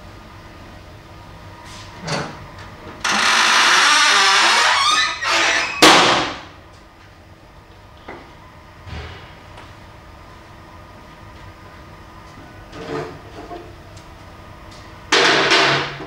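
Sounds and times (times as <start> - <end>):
panel scraping with squeal: 3.1 - 5.9
loud bang of panel: 5.8 - 6.5, 8.9 - 9.4.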